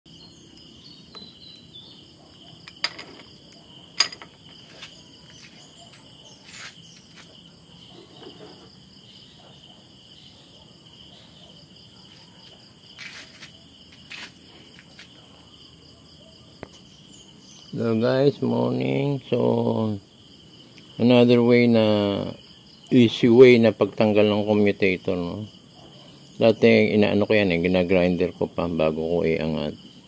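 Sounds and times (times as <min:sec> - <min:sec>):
insects chirring: 0:00.1 - 0:30.0
metal clanks: 0:02.6 - 0:04.5.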